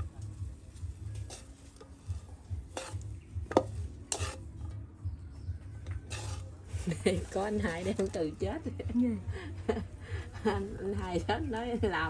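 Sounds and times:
light sizzle: 0.0 - 4.8, 5.8 - 8.8
chopsticks scraping a wok: 0.8 - 4.7, 6.0 - 8.2.

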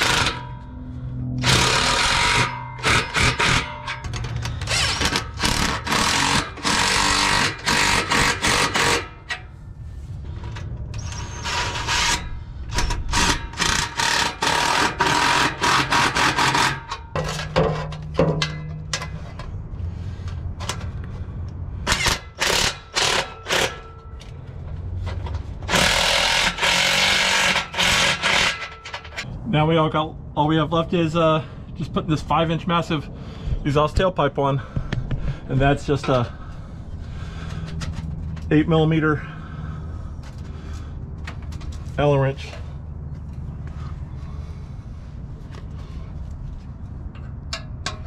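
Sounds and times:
impact driver hammering nuts: 0.0 - 0.4, 1.4 - 9.4, 12.8 - 18.6, 21.9 - 24.0, 25.7 - 29.2.

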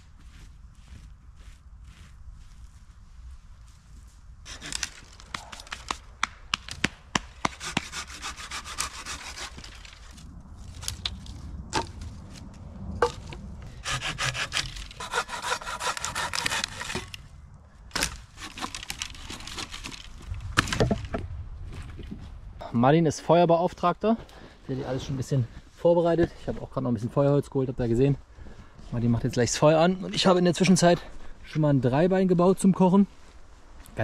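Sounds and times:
hand saw cutting branch: 4.5 - 6.6, 7.2 - 10.1, 13.8 - 17.2, 17.9 - 20.0
wood cracking and knocking: 17.9 - 22.1.

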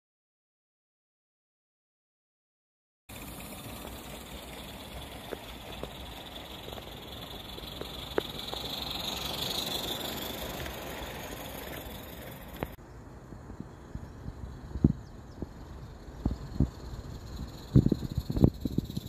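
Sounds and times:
steam locomotive hissing: 3.1 - 12.8
wheels clicking on track: 3.1 - 12.8, 14.3 - 19.0.

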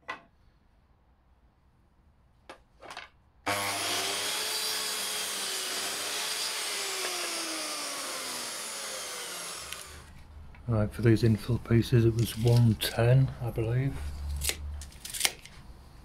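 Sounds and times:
mitre saw cutting wood: 3.5 - 10.1.

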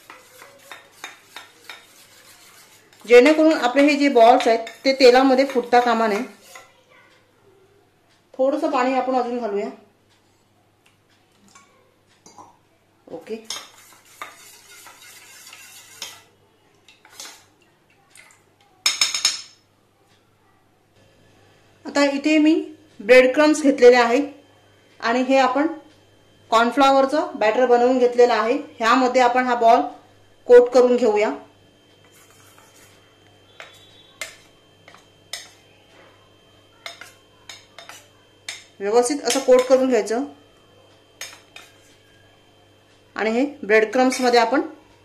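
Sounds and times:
metal spoon clinking against bowl: 0.0 - 2.0, 33.6 - 35.6, 36.8 - 39.8, 44.1 - 44.4
spoon scraping metal bowl: 0.0 - 6.7, 13.4 - 16.3, 16.9 - 17.5, 32.0 - 35.6, 36.8 - 39.8, 41.2 - 42.1, 43.9 - 44.4.

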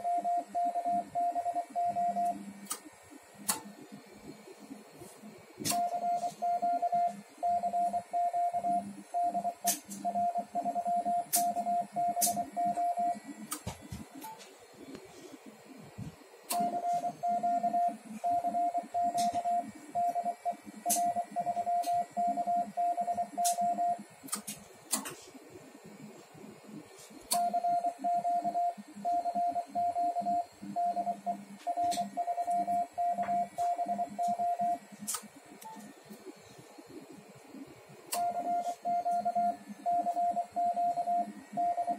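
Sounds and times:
morse code tone: 5.8 - 13.2, 16.6 - 24.0, 27.4 - 34.8, 38.2 - 41.9.

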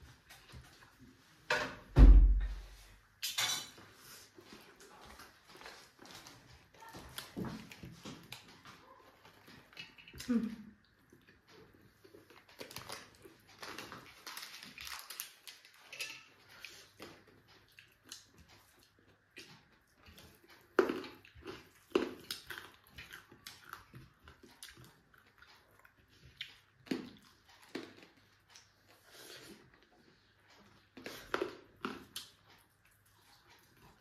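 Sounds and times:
person chewing and lip smacking: 16.5 - 34.0.

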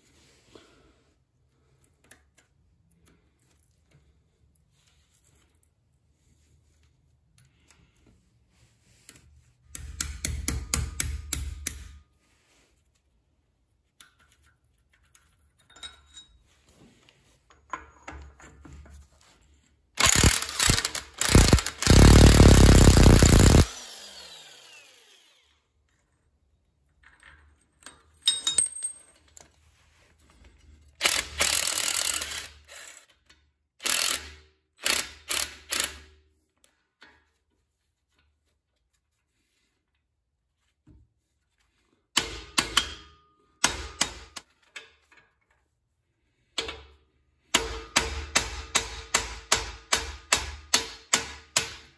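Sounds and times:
impact wrench hammering: 9.7 - 12.0, 20.0 - 24.5, 42.2 - 44.4, 47.6 - 51.9
hand ratchet clicking: 20.0 - 24.0, 31.0 - 33.2, 33.8 - 36.1
loud bursts of tool noise: 20.0 - 25.6, 31.0 - 33.0, 33.8 - 36.1.

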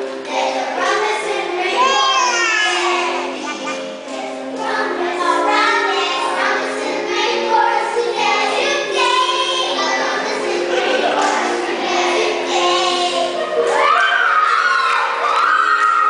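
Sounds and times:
instrumental accompaniment: 0.0 - 14.5
children singing: 0.0 - 16.0.

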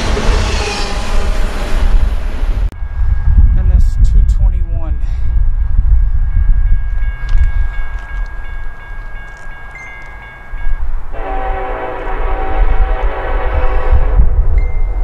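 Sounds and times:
freight train rumble: 0.0 - 15.0
crossing warning bell ringing: 2.8 - 11.8, 14.6 - 15.0
locomotive air horn blowing: 11.1 - 14.4.

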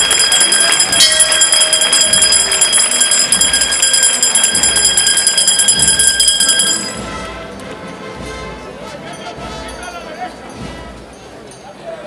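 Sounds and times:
metal bell ringing rapidly: 0.0 - 7.1.

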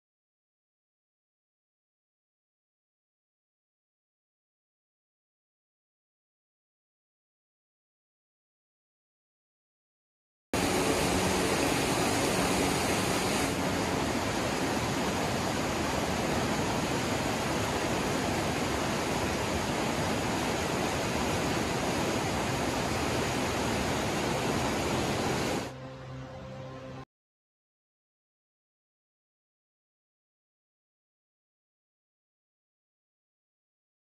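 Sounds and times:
whitewater rushing over boulders: 10.6 - 25.7.

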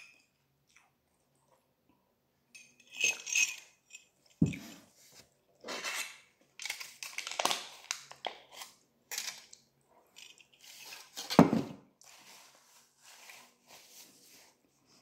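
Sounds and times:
foil lid crinkling: 6.6 - 9.4.

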